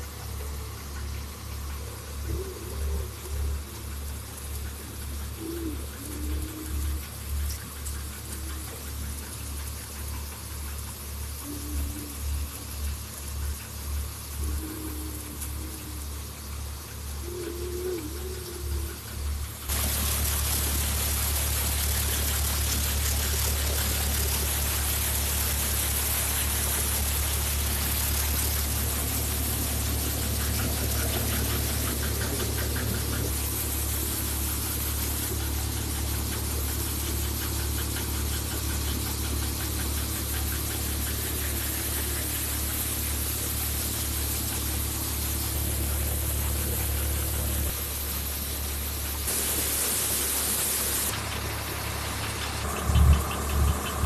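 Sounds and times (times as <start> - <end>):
thresher hiss of straw and chaff: 19.5 - 54.0.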